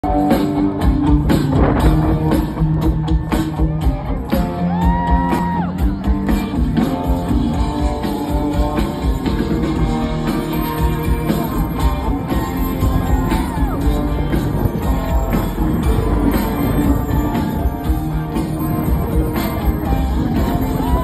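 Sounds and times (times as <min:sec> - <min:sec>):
live rock band: 0:00.0 - 0:21.0.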